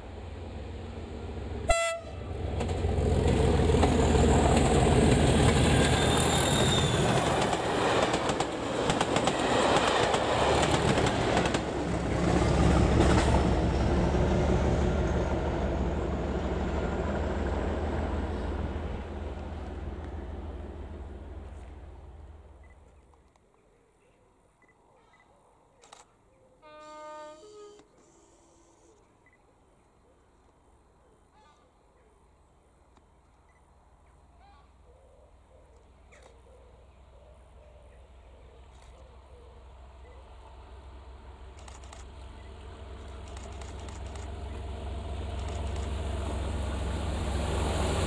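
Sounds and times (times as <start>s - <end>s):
diesel locomotive engine: 0.0s - 23.0s, 37.0s - 48.0s
train horn blast: 1.7s - 2.4s, 26.6s - 28.9s.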